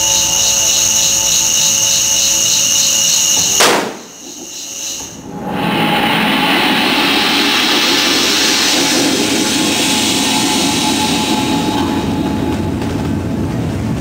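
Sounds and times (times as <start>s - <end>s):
firework fountain hissing: 6.2s - 13.3s.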